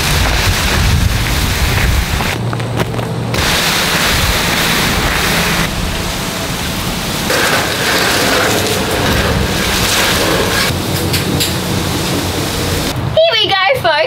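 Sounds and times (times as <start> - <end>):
branches dragged along ground: 3.4 - 11.2.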